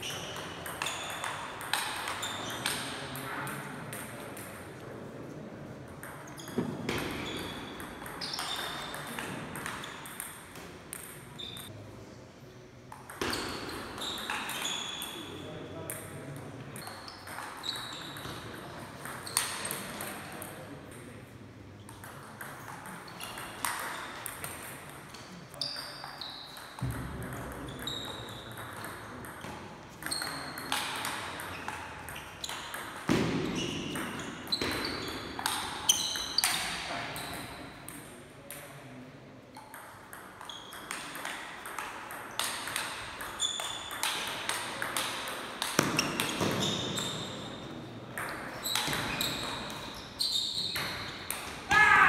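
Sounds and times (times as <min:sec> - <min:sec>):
shoes squeaking on floor: 0:02.1 - 0:02.8, 0:06.2 - 0:09.1, 0:11.4 - 0:11.7, 0:13.2 - 0:15.3, 0:16.8 - 0:18.3, 0:27.7 - 0:28.5, 0:33.4 - 0:36.6, 0:40.5 - 0:40.8, 0:43.3 - 0:44.1, 0:45.8 - 0:47.7, 0:48.5 - 0:51.3.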